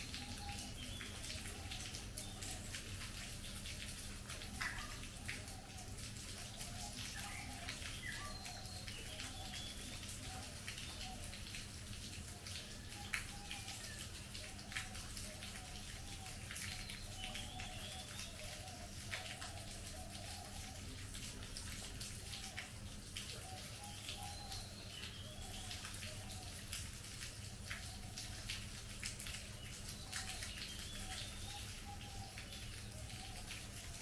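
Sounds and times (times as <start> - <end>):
heavy rain on foliage: 0.0 - 34.0
sharp water drips: 0.0 - 34.0
birds warbling and whistling: 6.6 - 10.1, 23.4 - 26.6.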